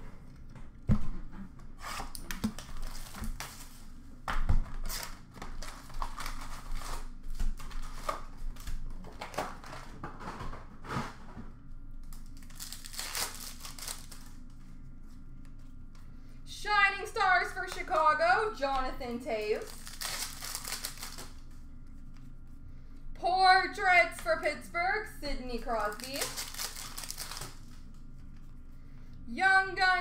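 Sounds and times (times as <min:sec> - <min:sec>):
foil wrappers crinkling and tearing: 0:02.5 - 0:03.8, 0:04.8 - 0:09.9, 0:12.0 - 0:14.5, 0:19.6 - 0:21.6, 0:25.8 - 0:27.9.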